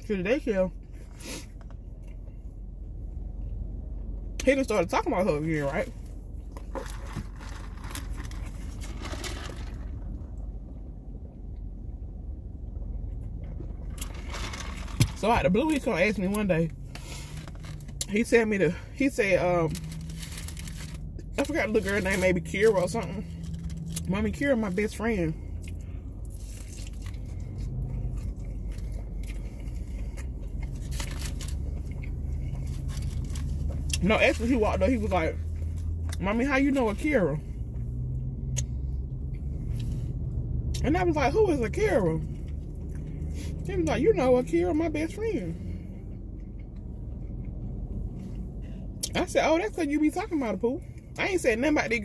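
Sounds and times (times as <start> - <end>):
car interior rumble: 0.0 - 52.0
steady low hum: 0.0 - 52.0
paper food box crinkling: 6.6 - 10.0, 19.7 - 24.0
chewing crispy chicken: 24.9 - 34.5.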